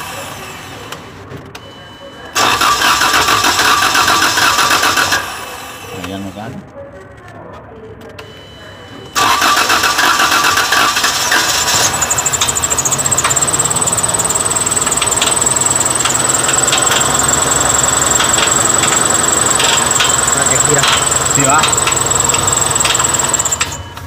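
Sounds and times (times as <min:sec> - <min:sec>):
engine starting and running: 0:02.3 - 0:05.8, 0:09.1 - 0:24.0
high-pitched engine whine: 0:09.2 - 0:24.0.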